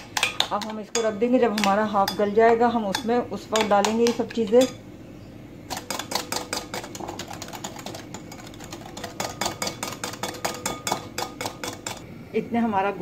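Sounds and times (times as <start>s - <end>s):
spoon clinking and scraping glass bowl: 5.7s - 12.0s.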